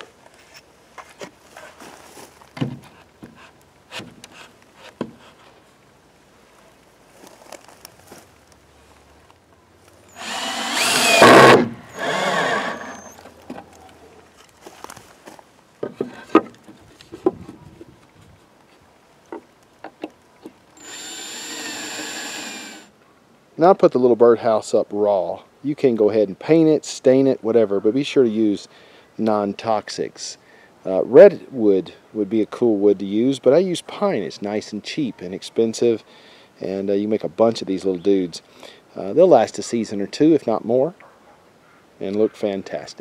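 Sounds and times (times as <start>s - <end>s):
cordless drill driving screws: 10.1s - 13.2s, 20.8s - 22.9s
steady hiss: 14.4s - 40.7s.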